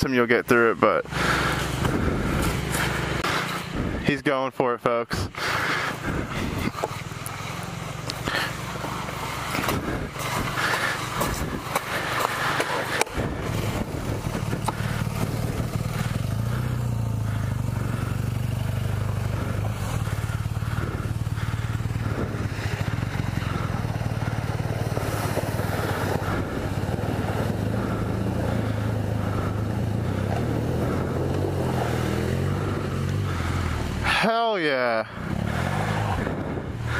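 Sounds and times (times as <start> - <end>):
motorcycle engine idling: 0.0 - 36.9
scrapes and knocks on gravel: 8.2 - 15.3.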